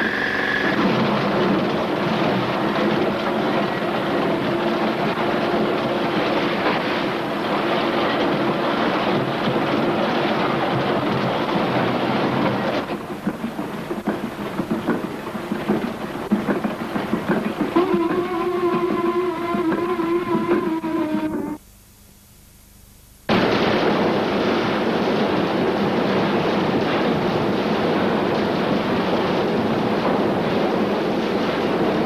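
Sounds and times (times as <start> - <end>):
mining machinery clatter: 0.0 - 21.0, 23.3 - 32.0
low steady hum: 20.2 - 23.4.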